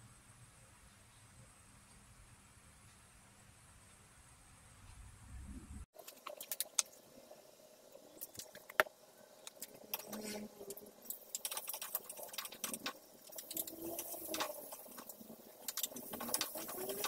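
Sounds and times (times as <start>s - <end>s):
wooden spatula scraping a wok: 10.0s - 10.6s.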